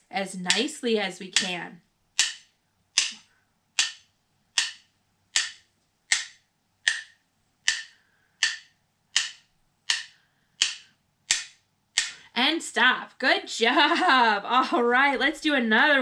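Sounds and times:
wooden sticks tapping: 0.4 - 1.6, 2.2 - 12.2.

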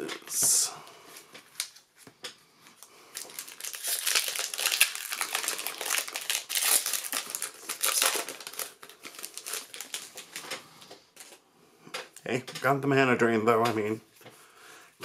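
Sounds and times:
foil wrapper crinkling: 3.1 - 10.6.

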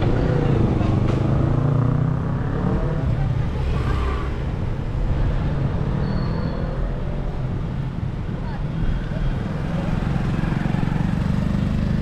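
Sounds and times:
road and wind rumble: 0.0 - 12.0.

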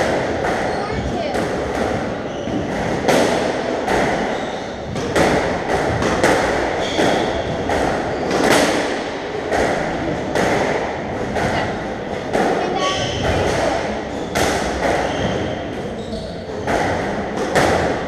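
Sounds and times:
ball striking court walls: 0.0 - 11.6
squash racket hitting ball: 0.0 - 18.0.

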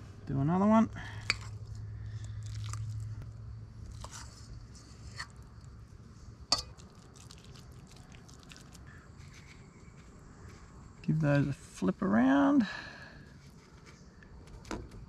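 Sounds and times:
soft squishing: 1.2 - 11.0.

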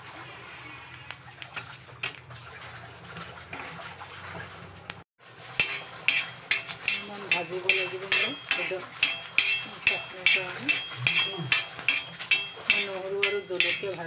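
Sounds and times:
metal spoon scraping iron pan: 5.5 - 14.0.

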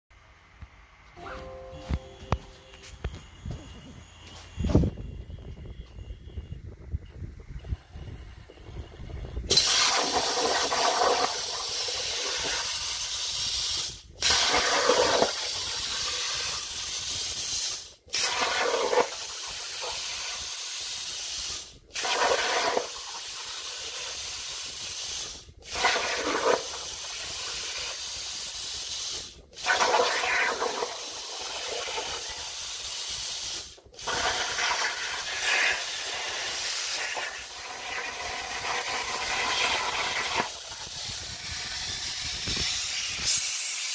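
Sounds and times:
plasma cutter hissing: 9.5 - 43.9.

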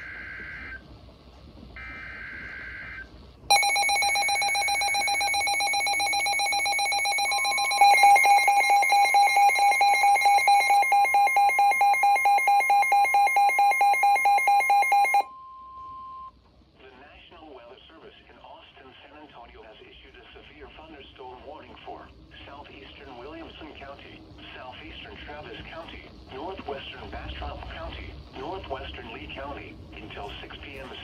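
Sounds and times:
steady warning alarm tone: 0.0 - 0.9, 1.8 - 16.3
rapid pulsing electronic beep: 3.5 - 15.3.

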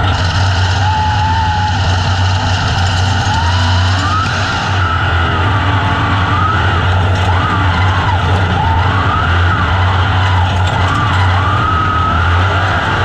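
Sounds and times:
race car engine revving: 0.0 - 13.0.

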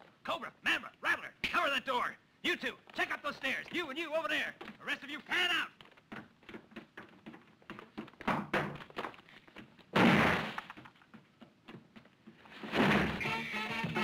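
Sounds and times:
heavy thud: 9.9 - 10.6, 12.6 - 13.3
lively music: 13.1 - 14.0.

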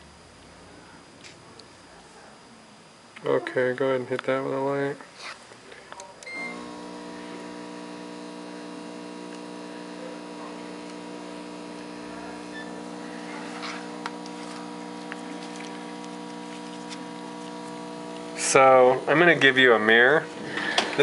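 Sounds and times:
curing light humming: 0.0 - 21.0
curing light beep: 6.2 - 6.7, 12.5 - 12.8.

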